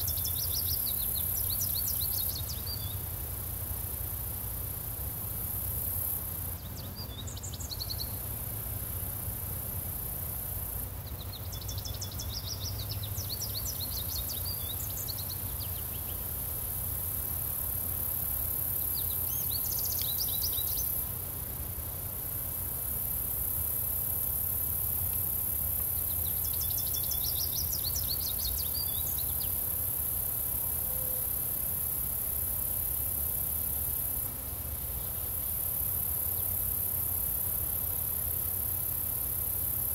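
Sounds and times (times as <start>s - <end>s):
songbird singing rapid notes: 0.0s - 3.1s, 6.6s - 8.3s, 11.0s - 16.3s, 18.6s - 21.0s, 25.8s - 29.8s
crickets chirping: 0.0s - 39.9s.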